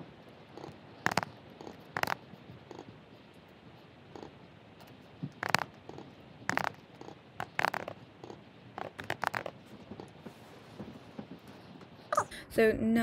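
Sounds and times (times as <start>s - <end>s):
computer keyboard typing: 0.6s - 2.8s, 5.4s - 9.6s.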